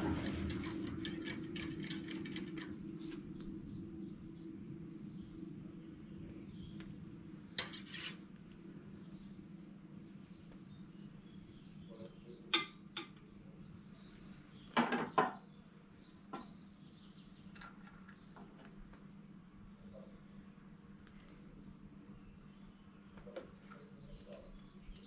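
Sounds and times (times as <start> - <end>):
steady low hum: 0.0 - 14.7.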